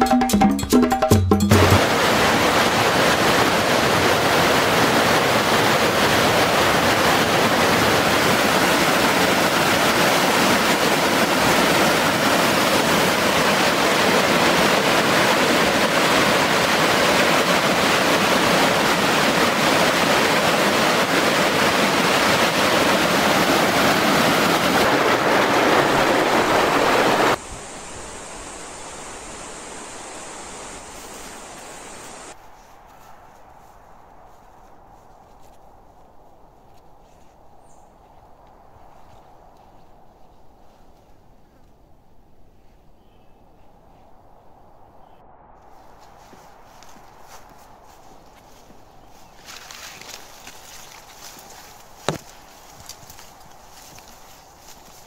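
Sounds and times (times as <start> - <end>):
quiet outdoor background: 0.0 - 3.9, 27.4 - 55.0
stream rushing over rocks: 1.5 - 32.4, 49.4 - 55.0.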